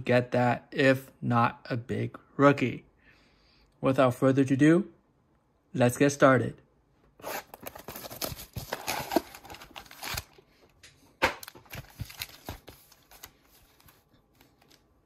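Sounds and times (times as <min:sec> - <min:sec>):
packaging crinkling and rustling: 0:07.3 - 0:14.9.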